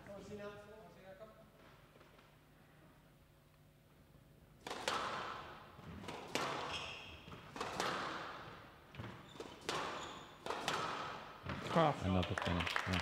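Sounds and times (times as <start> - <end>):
squash ball cracking off rackets: 4.6 - 11.6
shoes squeaking on wooden floor: 6.7 - 7.4, 9.0 - 10.4.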